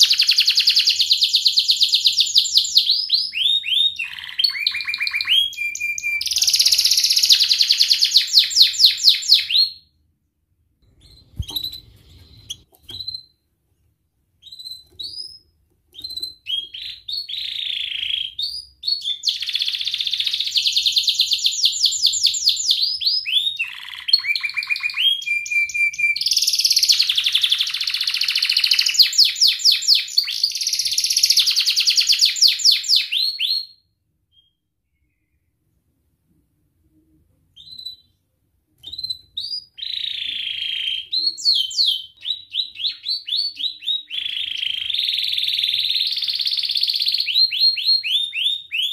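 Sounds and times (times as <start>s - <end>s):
canary singing trills: 0.0s - 9.8s, 10.9s - 13.4s, 14.4s - 33.6s
canary chirps: 0.0s - 10.0s, 10.8s - 13.5s, 14.3s - 35.7s, 37.5s - 48.9s.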